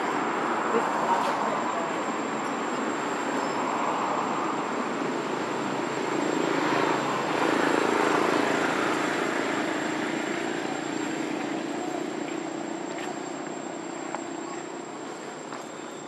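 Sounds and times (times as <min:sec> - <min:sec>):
engine-like drone with low hum: 0:00.0 - 0:16.0.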